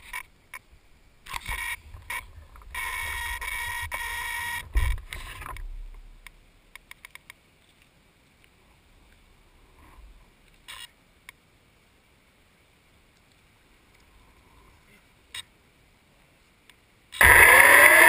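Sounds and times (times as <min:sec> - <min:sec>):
faint sharp ticks: 0:04.9 - 0:09.2, 0:13.1 - 0:14.1.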